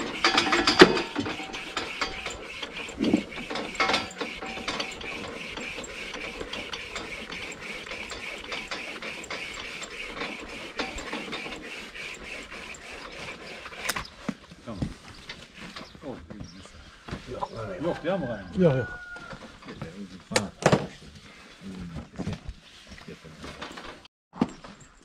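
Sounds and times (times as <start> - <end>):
wire saw rasping through horn: 0.0 - 16.0.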